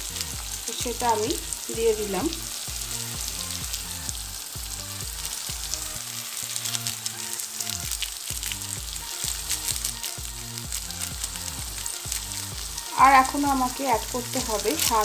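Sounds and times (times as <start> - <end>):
soft background music: 0.0 - 15.0
vegetables sizzling in oil: 0.0 - 15.0.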